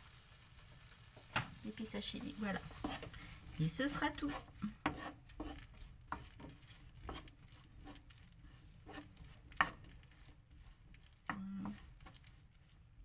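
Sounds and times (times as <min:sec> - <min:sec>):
spatula scraping food in wok: 0:01.9 - 0:12.8
spatula knocking on wok: 0:04.2 - 0:07.3.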